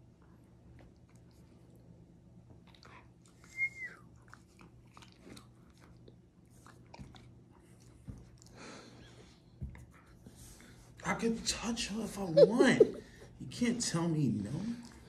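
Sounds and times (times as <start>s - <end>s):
dog mouthing and nibbling: 4.2s - 8.5s
dog whining: 12.2s - 13.1s.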